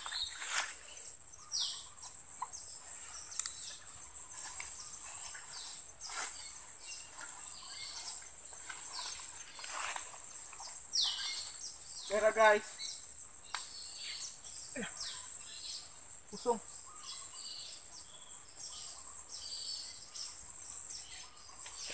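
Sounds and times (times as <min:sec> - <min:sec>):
footsteps rustling through grass: 0:00.0 - 0:01.1, 0:02.7 - 0:12.8
sharp click: 0:03.3 - 0:03.6.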